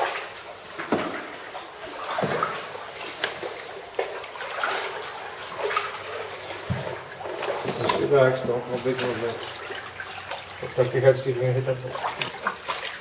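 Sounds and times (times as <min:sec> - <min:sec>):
paddles splashing in water: 0:00.0 - 0:13.0
water sloshing against hull: 0:00.0 - 0:13.0.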